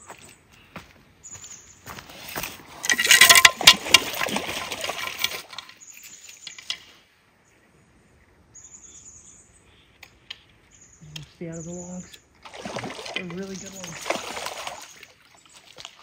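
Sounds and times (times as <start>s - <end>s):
fish splashing in water: 12.4s - 16.0s.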